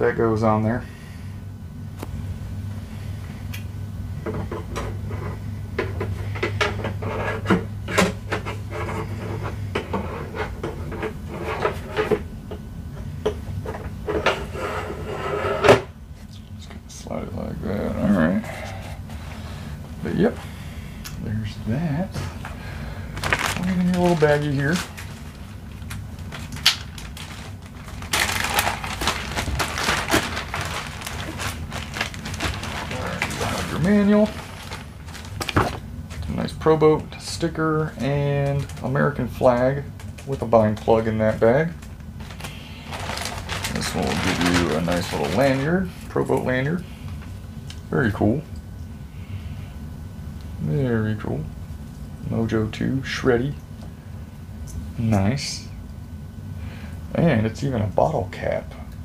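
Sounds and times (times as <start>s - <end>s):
plastic bag crinkling: 23.0s - 36.6s, 37.9s - 46.1s
plastic bag seal snapping open: 25.9s - 33.6s.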